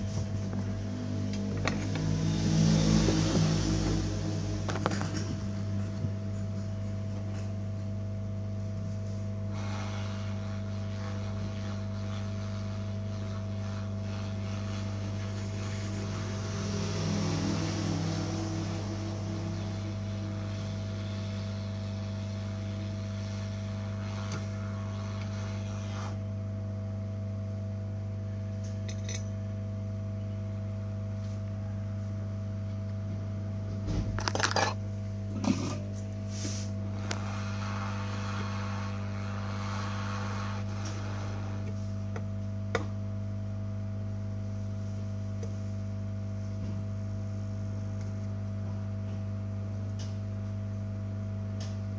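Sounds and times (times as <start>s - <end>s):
hot air gun blowing: 35.4s - 41.8s.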